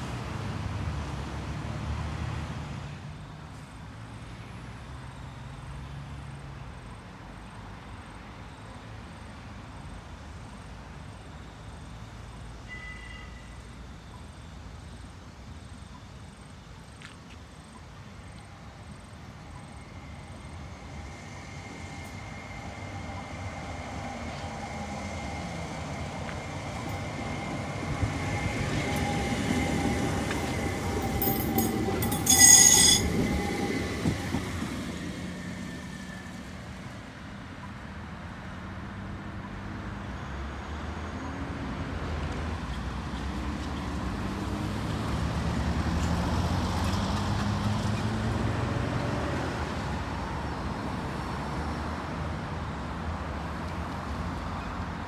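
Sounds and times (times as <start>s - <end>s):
road traffic: 0.0s - 55.0s
tram rumble: 0.0s - 55.0s
tram electric whine: 17.8s - 37.6s
shrill high-pitched sound: 31.2s - 33.4s.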